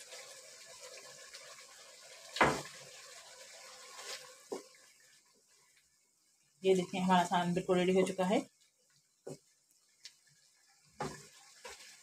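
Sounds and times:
curry bubbling: 0:00.0 - 0:12.0
wooden spatula stirring: 0:10.9 - 0:12.0.

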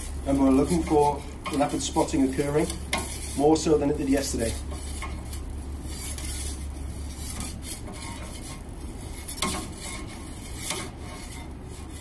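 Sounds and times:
gas burner hissing: 0:00.0 - 0:12.0
metal peel scraping stone: 0:00.0 - 0:12.0.

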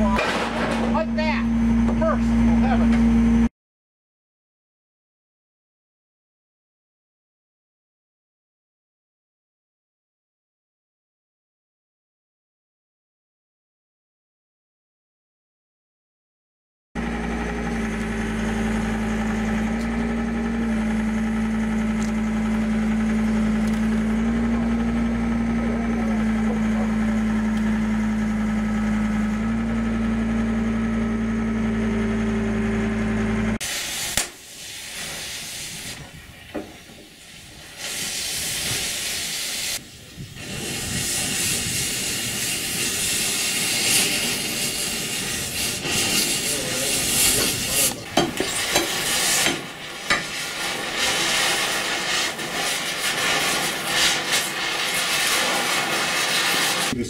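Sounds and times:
loader engine running: 0:00.0 - 0:03.5, 0:17.0 - 0:33.7, 0:39.3 - 0:57.0
cutting torch hissing: 0:17.4 - 0:29.9, 0:33.5 - 0:57.0.

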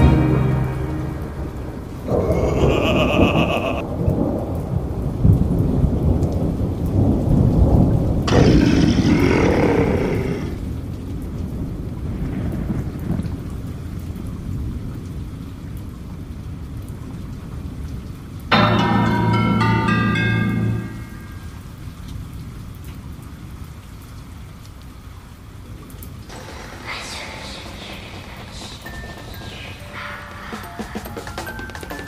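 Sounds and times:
thunder rumbling and crashing: 0:00.0 - 0:10.9, 0:26.3 - 0:31.7
rain: 0:00.0 - 0:32.0.

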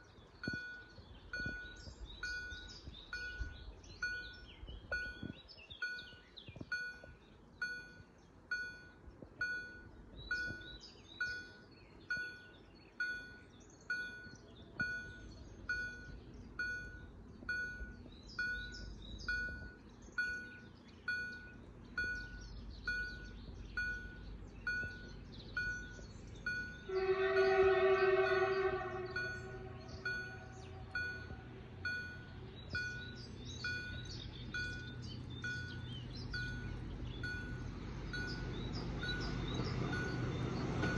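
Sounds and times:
birds chirping: 0:00.0 - 0:40.9
level crossing warning bell: 0:00.4 - 0:40.9
train horn blast: 0:26.8 - 0:31.6.

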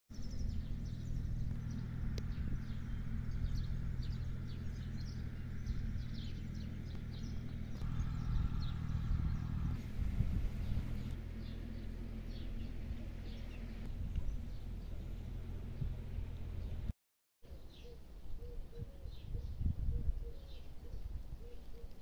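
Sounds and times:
birds chirping: 0:00.1 - 0:16.9, 0:17.5 - 0:22.0
steady low rumble: 0:00.2 - 0:16.9.

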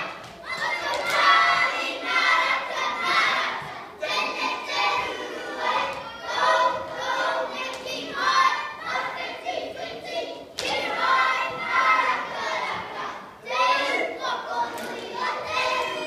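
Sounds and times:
children chanting in unison: 0:00.0 - 0:16.0.

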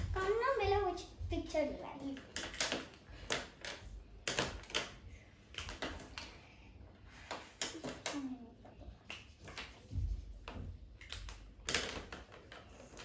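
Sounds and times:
markers scratching on paper: 0:07.1 - 0:13.0.

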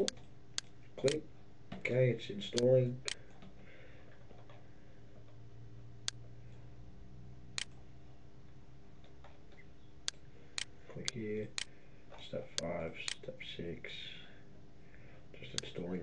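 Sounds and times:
low electrical hum: 0:00.0 - 0:16.0
computer mouse clicks: 0:02.6 - 0:03.3.

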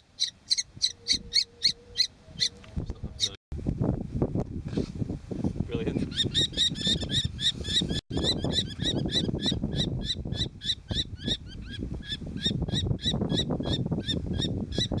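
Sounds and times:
kestrel nestlings calling: 0:00.0 - 0:02.6, 0:06.1 - 0:15.0.

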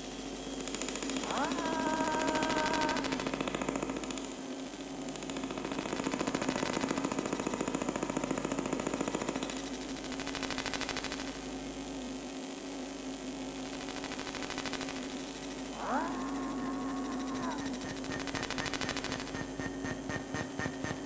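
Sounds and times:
pulsing electrical buzz: 0:09.3 - 0:21.0.

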